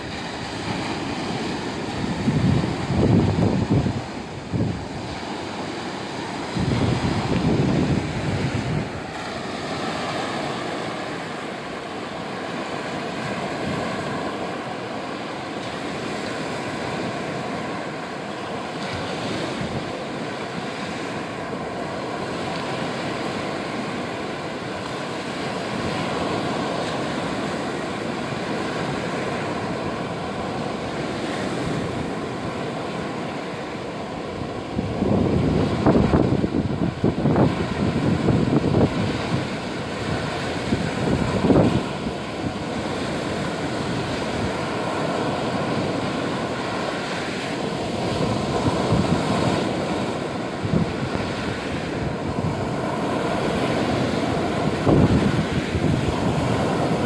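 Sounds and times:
wind buffeting microphone: 0:00.0 - 0:11.3, 0:34.2 - 0:57.0
surf washing up beach: 0:00.0 - 0:57.0.

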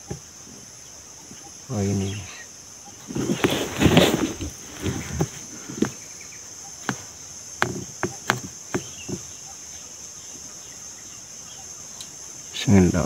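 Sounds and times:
insects buzzing: 0:00.0 - 0:13.0.

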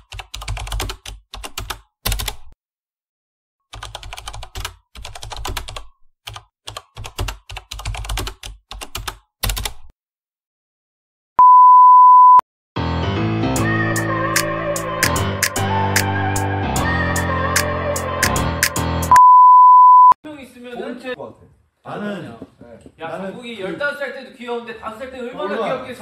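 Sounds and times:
steady beep: 0:11.4 - 0:12.4, 0:19.1 - 0:20.2.

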